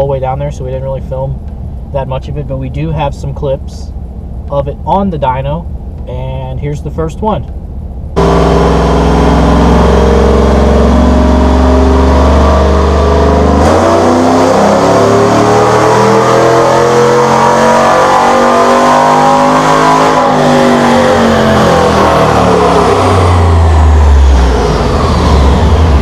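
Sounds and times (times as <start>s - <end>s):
car engine revving on dyno: 8.2s - 26.0s.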